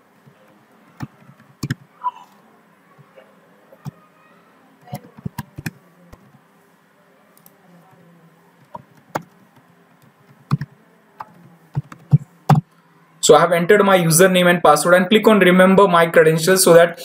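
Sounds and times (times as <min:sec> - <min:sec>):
faint steady hum: 0:00.0 - 0:17.0
keyboard keystrokes: 0:01.0 - 0:01.8, 0:04.8 - 0:05.8, 0:10.0 - 0:12.6.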